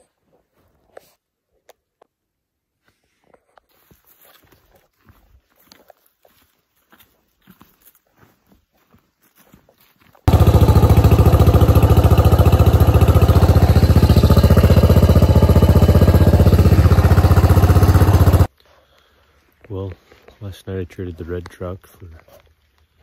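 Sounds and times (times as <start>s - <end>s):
dirt bike engine running: 10.3s - 18.5s.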